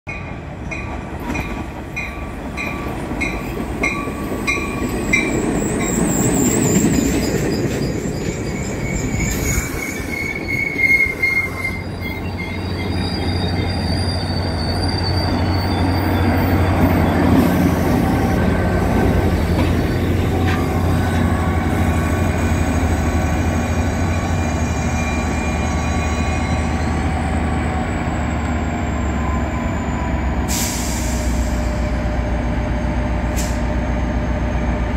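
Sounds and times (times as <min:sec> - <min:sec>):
train bell ringing: 0:00.1 - 0:10.1
diesel locomotive humming: 0:00.1 - 0:34.9
train cars rumbling: 0:00.1 - 0:34.9
train wheels and brakes squealing: 0:01.3 - 0:34.9.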